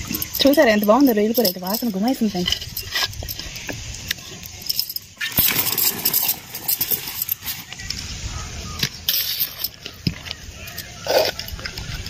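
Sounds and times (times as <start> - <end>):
metal kitchenware clinking: 0.0 - 3.6, 4.4 - 7.6.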